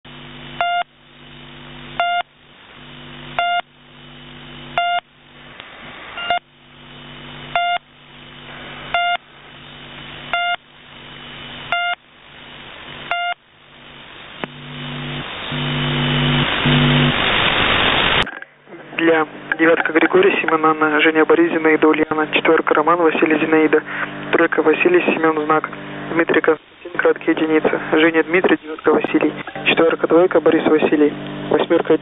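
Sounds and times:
low hum: 0:00.1 - 0:32.0
radio static hiss: 0:00.1 - 0:32.0
short radio beeps: 0:00.6 - 0:00.9, 0:02.0 - 0:02.3, 0:03.4 - 0:03.6, 0:04.8 - 0:05.0, 0:06.2 - 0:06.4, 0:07.5 - 0:07.8, 0:08.9 - 0:09.2, 0:10.3 - 0:10.6, 0:11.7 - 0:12.0, 0:13.1 - 0:13.4.

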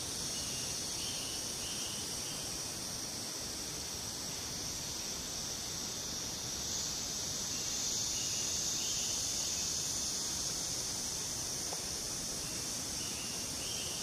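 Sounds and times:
insect chorus buzzing: 0:00.0 - 0:14.0.

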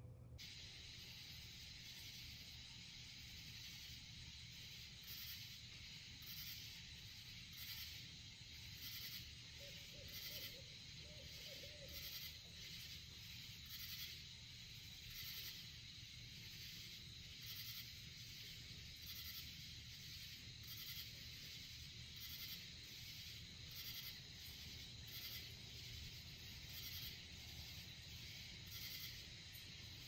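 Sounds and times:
low outdoor rumble: 0:00.0 - 0:01.3
insects chirping: 0:00.4 - 0:30.0.

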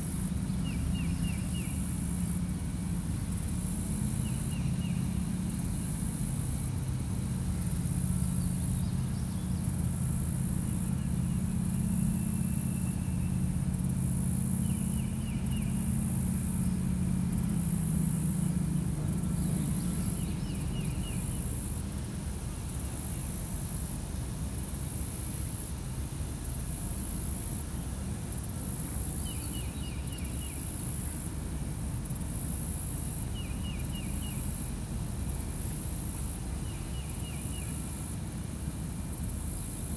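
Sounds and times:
distant engine hum: 0:00.0 - 0:39.9
high insect buzz: 0:00.0 - 0:39.9.

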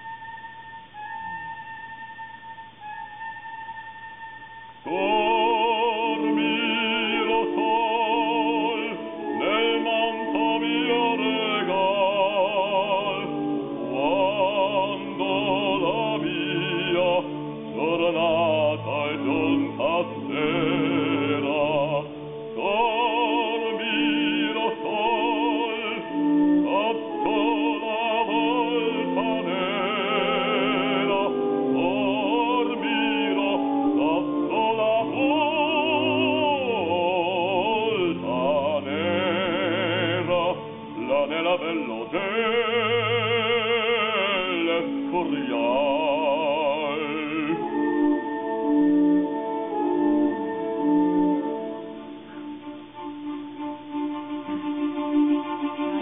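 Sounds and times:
man singing operatically: 0:04.8 - 0:49.1.

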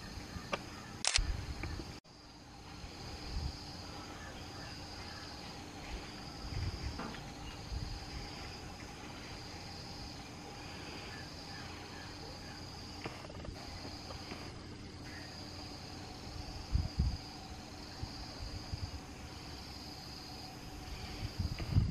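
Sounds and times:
insect chorus trilling: 0:00.0 - 0:21.9.

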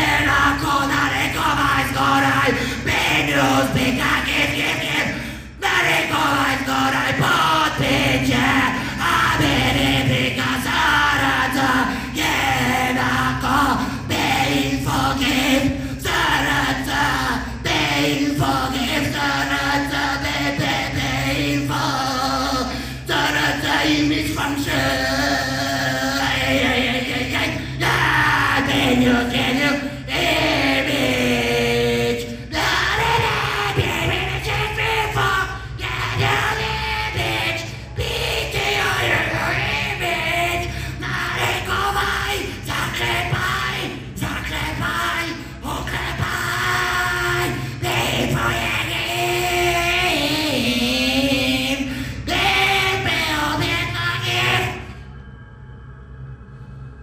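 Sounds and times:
low drone: 0:00.0 - 0:57.0
man chanting into microphone: 0:33.0 - 0:51.8, 0:52.4 - 0:54.8.

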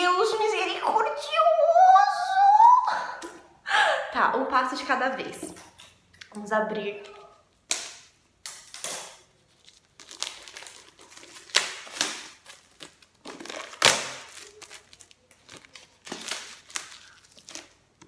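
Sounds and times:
plastic shrink wrap crinkling: 0:05.6 - 0:18.0.

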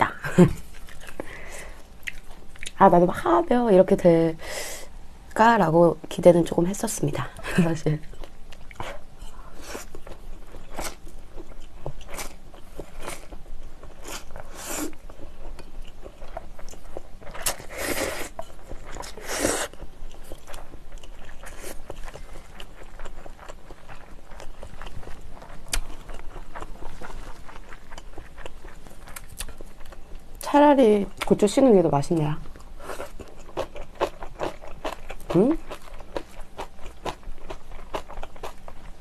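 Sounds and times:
person chewing: 0:00.6 - 0:02.8, 0:08.1 - 0:30.0, 0:32.6 - 0:39.0.

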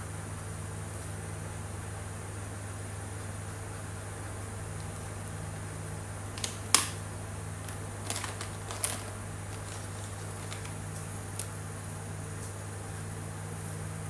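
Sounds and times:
steady low hum: 0:00.0 - 0:14.0
marker pens clicking and clattering: 0:06.4 - 0:07.0, 0:07.6 - 0:11.5.

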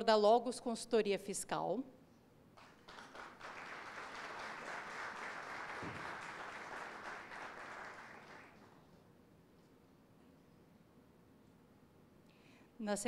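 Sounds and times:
audience applause: 0:02.6 - 0:08.8.

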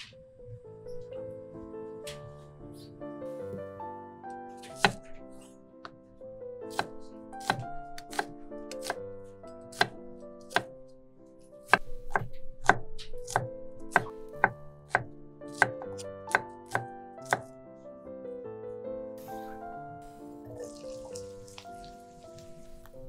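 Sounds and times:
background music: 0:00.0 - 0:23.0
knife chopping on cutting board: 0:04.7 - 0:05.1, 0:06.7 - 0:09.0, 0:09.7 - 0:10.7, 0:11.7 - 0:17.5.

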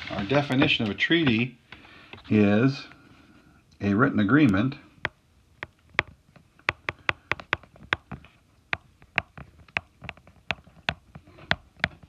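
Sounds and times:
stylus tapping on glass screen: 0:05.0 - 0:12.0.

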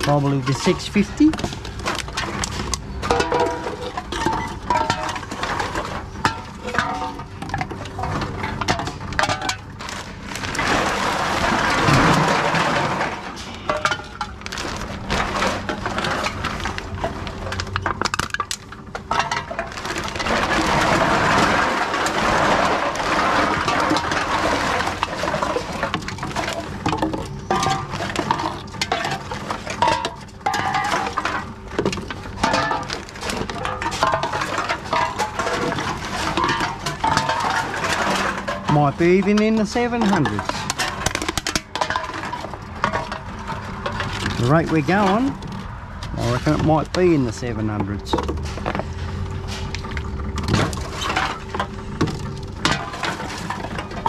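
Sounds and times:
cans and bottles clinking: 0:00.0 - 0:54.0
plastic bag rustling: 0:09.6 - 0:17.8, 0:19.1 - 0:29.9.

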